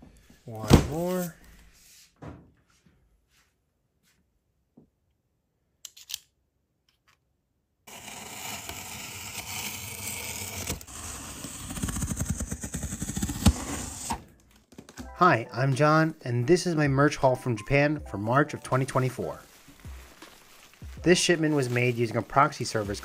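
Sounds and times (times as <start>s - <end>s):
knife slicing packing tape: 7.9s - 14.2s.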